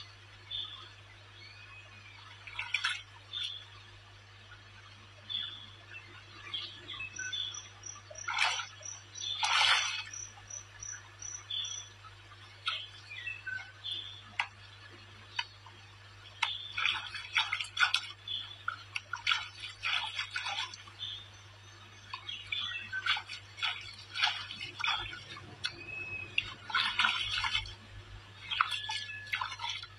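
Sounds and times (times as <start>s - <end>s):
water splashing from wading: 8.1s - 10.8s, 12.4s - 21.3s, 22.0s - 29.9s.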